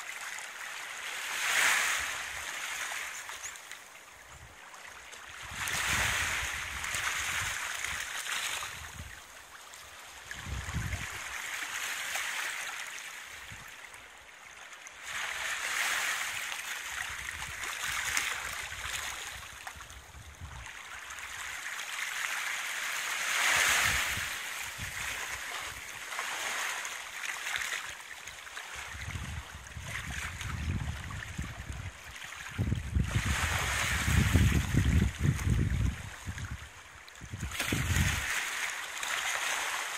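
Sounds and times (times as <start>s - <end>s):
small waves lapping: 0.0s - 39.9s
wind buffeting microphone: 5.4s - 7.6s, 10.3s - 11.2s, 28.9s - 38.3s.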